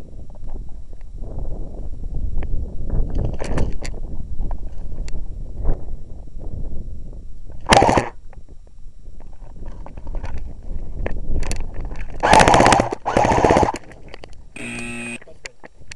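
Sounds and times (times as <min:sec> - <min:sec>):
airsoft guns firing bursts: 0:12.2 - 0:13.8.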